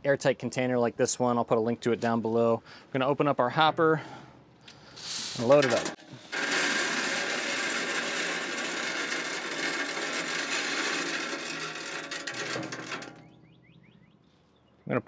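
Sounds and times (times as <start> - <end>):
pellets pouring into metal hopper: 5.2 - 13.2.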